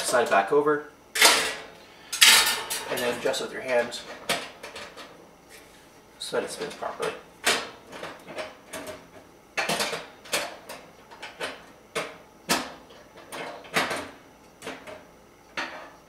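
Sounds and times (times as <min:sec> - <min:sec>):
metal parts clinking in oven: 0:01.2 - 0:05.1.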